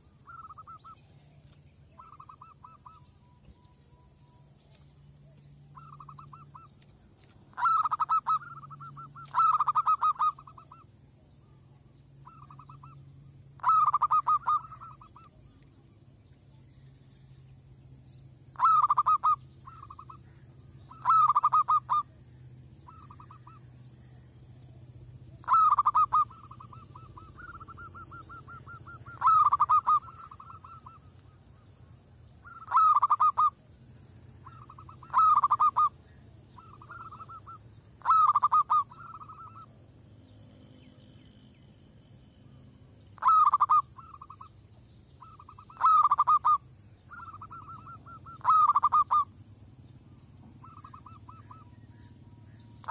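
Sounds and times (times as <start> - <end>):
dove cooing: 0.0 - 1.0, 1.9 - 3.0, 5.2 - 6.8, 7.5 - 10.9, 13.6 - 15.3, 18.6 - 20.2, 20.9 - 22.1, 22.8 - 23.7, 25.4 - 31.3, 32.4 - 33.6, 34.4 - 39.7, 43.2 - 44.4, 45.2 - 49.3, 50.6 - 51.9.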